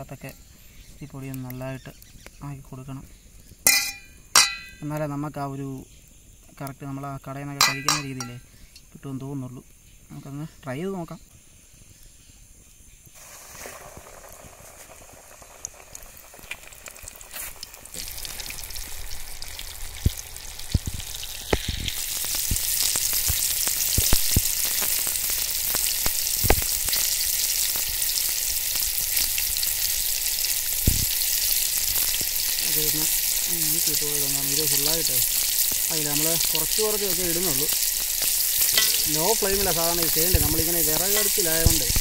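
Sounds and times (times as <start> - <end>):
chicken deep-frying in oil: 3.6 - 5.7, 6.8 - 8.4, 13.2 - 42.0.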